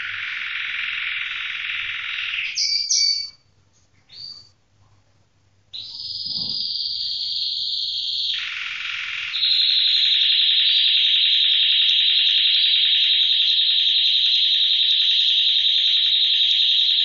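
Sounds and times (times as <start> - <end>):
canary singing trills: 0.0 - 3.5, 4.1 - 4.6, 5.7 - 17.0.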